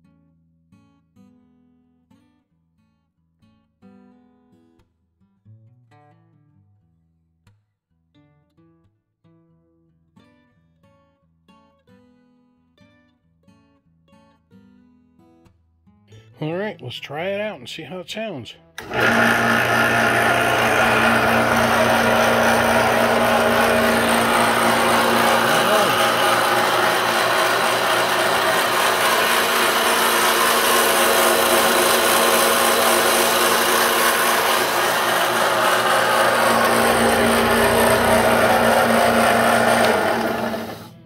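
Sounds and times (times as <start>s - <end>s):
constant motor hum: 18.8s - 40.9s
table saw running: 18.8s - 41.0s.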